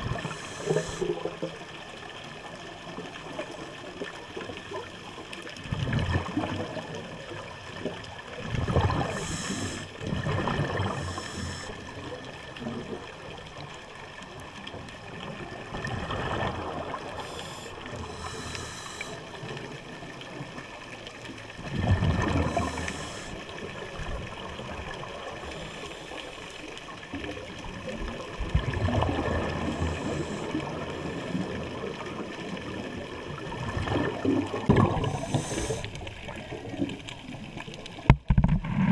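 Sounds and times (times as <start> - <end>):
scuba regulator breathing: 0.0 - 1.2, 8.9 - 10.0, 10.8 - 12.0, 17.1 - 19.4, 22.3 - 23.5, 25.5 - 26.4, 29.6 - 30.8, 34.9 - 36.1
bubbles gurgling underwater: 0.0 - 25.8, 26.8 - 38.9
regulator hiss: 0.2 - 1.1, 9.1 - 9.9, 11.0 - 11.8, 17.2 - 19.2, 22.5 - 23.4, 35.0 - 35.9.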